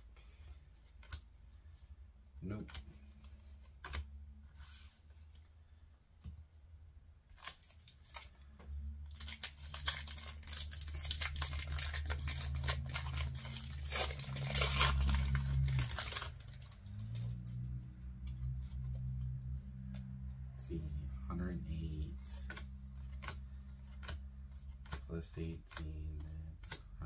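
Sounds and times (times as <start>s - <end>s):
foil wrapper crinkling and tearing: 7.3s - 8.4s, 9.0s - 17.6s
steady low hum: 10.2s - 27.0s.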